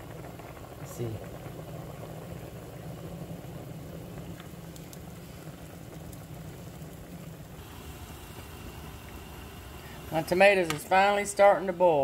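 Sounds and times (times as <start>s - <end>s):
pots boiling and bubbling: 0.0s - 12.0s
faint clicks: 4.4s - 5.1s.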